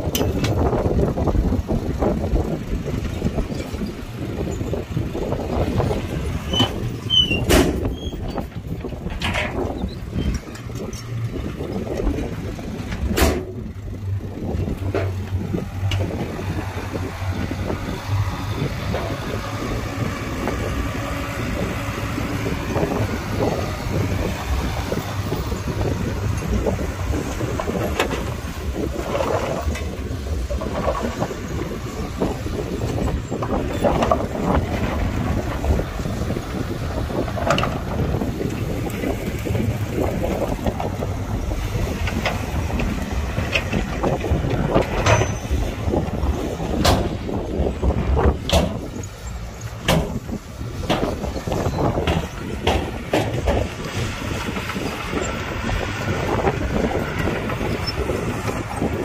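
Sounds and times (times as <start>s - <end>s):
heavy diesel machinery running: 0.0s - 59.0s
metal clanks and scrapes: 6.4s - 13.6s, 42.0s - 45.8s.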